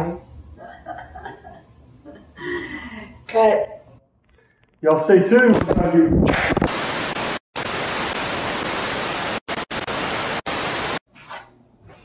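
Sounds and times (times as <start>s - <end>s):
tv static hiss: 5.6s - 11.0s.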